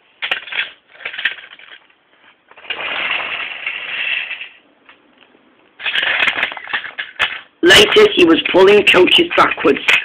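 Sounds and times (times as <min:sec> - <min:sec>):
toy train rolling on track: 0:02.6 - 0:04.6, 0:05.8 - 0:10.0.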